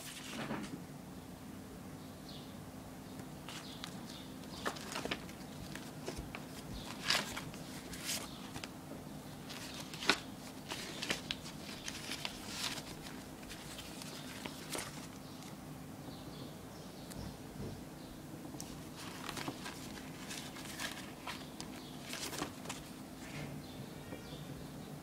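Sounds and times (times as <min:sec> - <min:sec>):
faint steady hum: 0:00.0 - 0:25.0
paper stickers rustling: 0:03.4 - 0:08.7, 0:09.4 - 0:15.6, 0:18.6 - 0:23.0.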